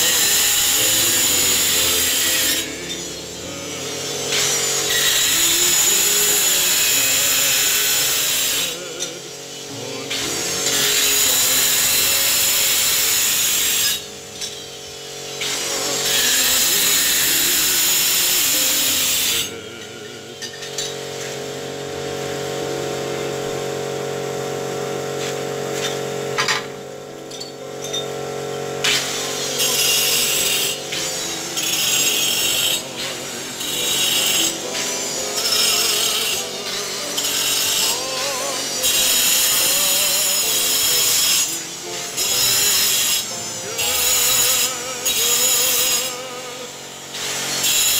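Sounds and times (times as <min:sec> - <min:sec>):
hand tool scraping stone wall: 0:00.0 - 0:09.1, 0:28.8 - 0:46.2.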